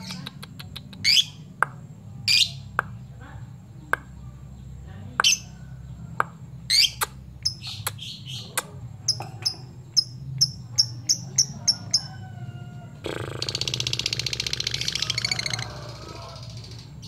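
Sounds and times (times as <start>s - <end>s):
lovebird chirping: 0.0s - 1.5s, 2.2s - 3.1s, 3.7s - 12.3s, 13.1s - 17.0s
lovebird rattling chatter: 13.2s - 17.0s.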